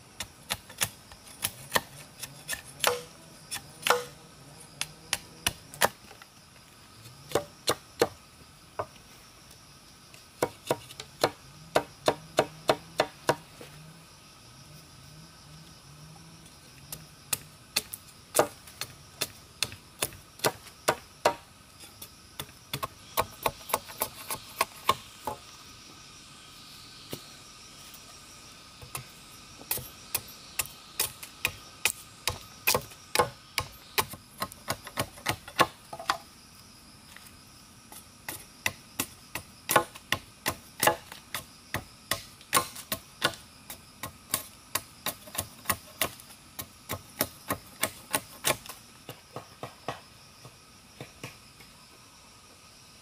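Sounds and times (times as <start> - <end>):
chopping strikes on wood: 0.5 - 4.2, 7.3 - 8.2, 10.4 - 13.5, 17.3 - 21.5, 22.4 - 25.4, 29.6 - 36.2, 38.3 - 43.4, 44.0 - 50.1.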